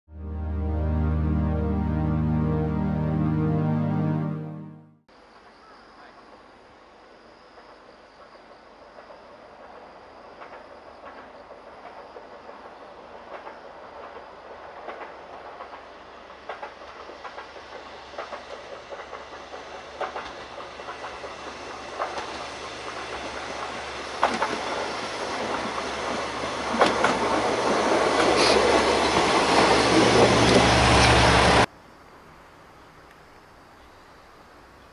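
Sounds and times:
train wheels clicking over rail joints: 0:10.4 - 0:31.2.

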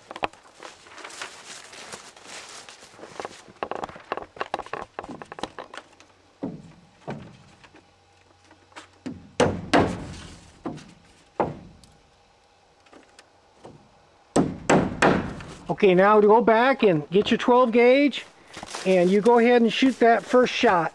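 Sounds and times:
hammer knocking on wooden wall: 0:06.4 - 0:07.3, 0:09.0 - 0:11.8, 0:14.4 - 0:15.4.

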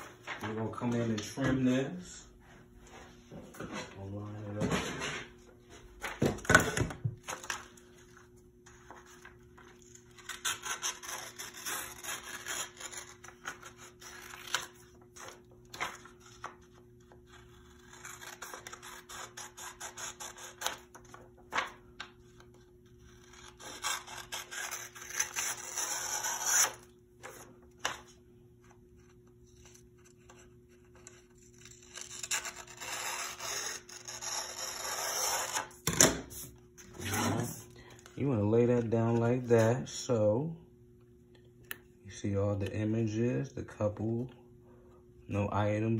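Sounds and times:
low steady hum: 0:00.0 - 0:45.9
scissors snipping paper: 0:17.2 - 0:21.7.

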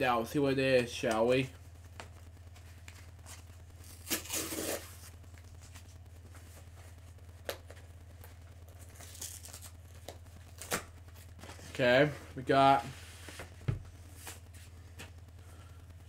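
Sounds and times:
steady low hum: 0:00.0 - 0:16.0
package ripping open: 0:03.8 - 0:05.1, 0:08.8 - 0:09.8, 0:10.5 - 0:10.9.

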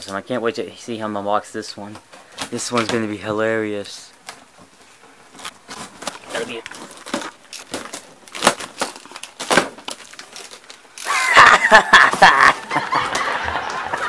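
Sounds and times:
scrapes and rustles: 0:04.3 - 0:10.8
tape and cardboard ripping: 0:05.3 - 0:13.2
box cutter slitting tape: 0:05.4 - 0:12.5.

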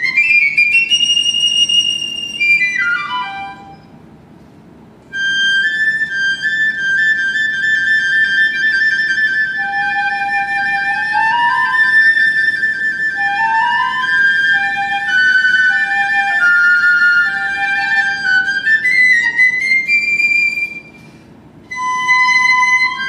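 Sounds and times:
piccolos playing: 0:00.0 - 0:04.0, 0:05.1 - 0:23.0.

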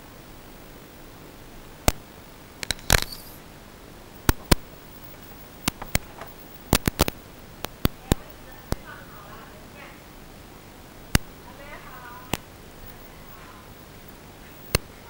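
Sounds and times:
faint steady hiss: 0:00.0 - 0:15.0
sharp clicks and taps: 0:01.8 - 0:03.3, 0:04.2 - 0:08.8, 0:11.1 - 0:11.4, 0:12.3 - 0:13.1.

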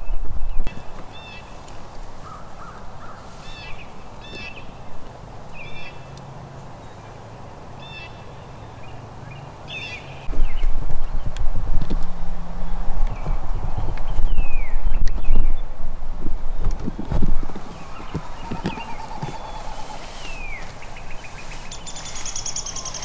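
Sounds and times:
birds calling: 0:00.7 - 0:11.2, 0:16.7 - 0:23.0.

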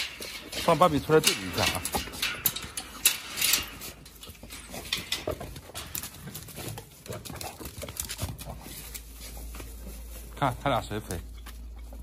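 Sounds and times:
dog paws pattering on dirt: 0:00.0 - 0:12.0
metal carabiner and chain rattling: 0:00.1 - 0:06.3.

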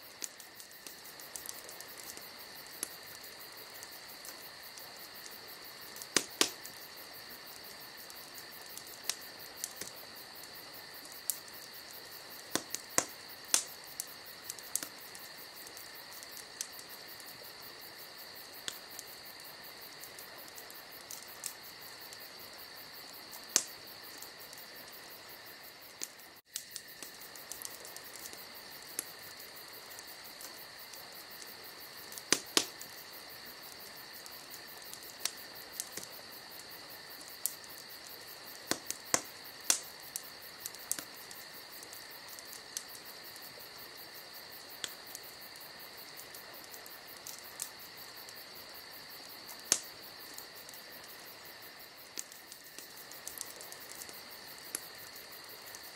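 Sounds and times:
crickets trilling: 0:00.0 - 0:55.9.

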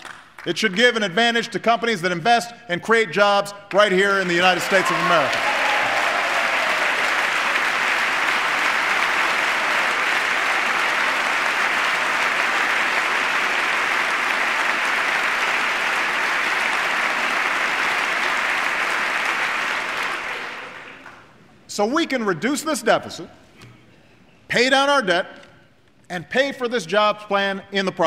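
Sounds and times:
audience applauding: 0:04.1 - 0:21.4.

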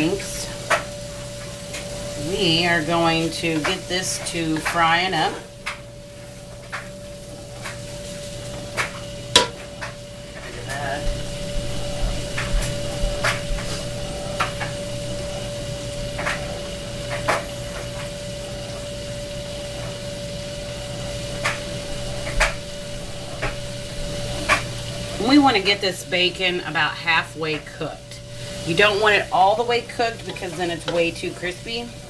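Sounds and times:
bacon sizzling: 0:00.0 - 0:32.0
wooden spoon knocking on pot: 0:09.3 - 0:09.6.

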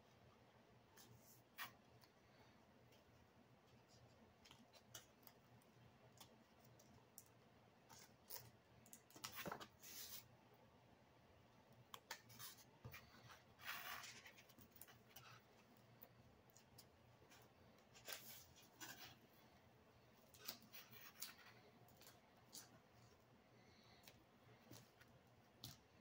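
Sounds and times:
foam board parts clicking and scraping: 0:12.0 - 0:19.3, 0:20.2 - 0:23.2.

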